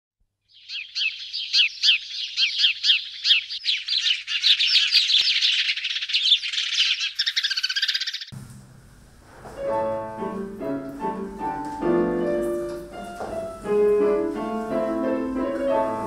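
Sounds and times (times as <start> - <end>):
birds chirping and trilling: 0.4 - 8.4.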